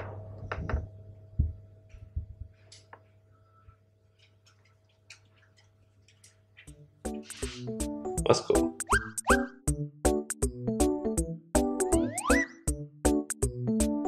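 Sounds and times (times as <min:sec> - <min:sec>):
low hum: 0:00.0 - 0:03.8.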